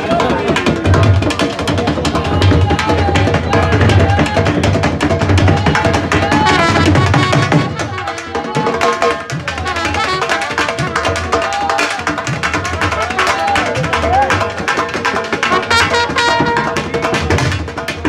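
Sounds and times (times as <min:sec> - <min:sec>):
drums beaten with sticks: 0:00.0 - 0:18.0
trumpet bending melody: 0:06.4 - 0:11.8, 0:15.5 - 0:16.8.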